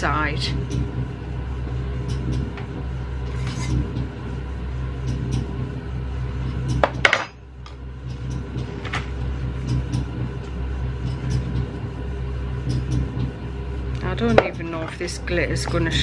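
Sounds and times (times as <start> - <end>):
electric mixers humming: 0.0 - 16.0.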